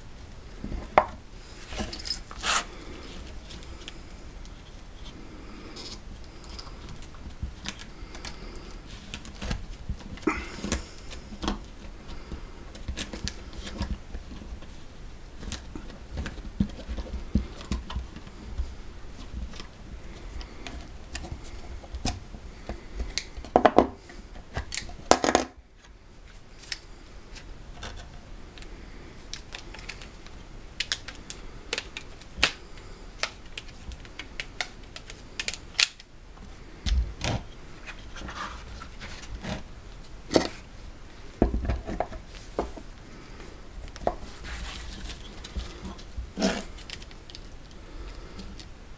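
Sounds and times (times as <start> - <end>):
rustling leather: 0.6 - 24.3, 43.8 - 47.0.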